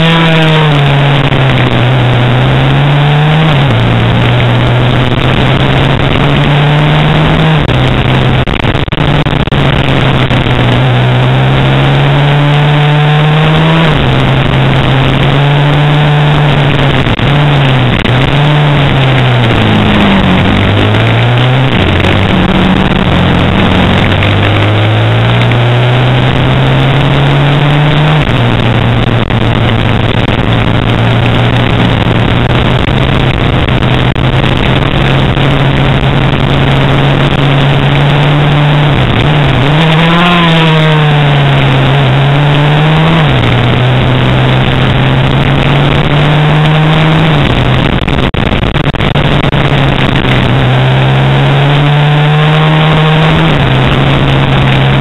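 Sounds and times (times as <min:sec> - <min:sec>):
motorcycle engine revving: 0:00.0 - 0:55.0
wind rush on camera: 0:13.5 - 0:55.0.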